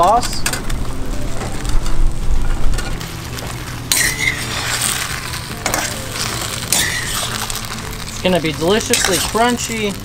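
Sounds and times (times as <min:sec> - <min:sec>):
sauce simmering hiss: 0:00.8 - 0:10.0
metal spatula scraping in wok: 0:02.7 - 0:10.0.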